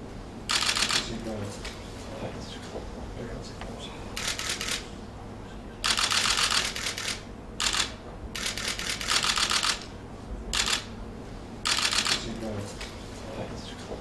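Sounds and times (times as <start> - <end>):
rapid clicking bursts: 0.5 - 1.8, 4.2 - 4.9, 5.8 - 9.9, 10.6 - 10.9, 11.6 - 12.3.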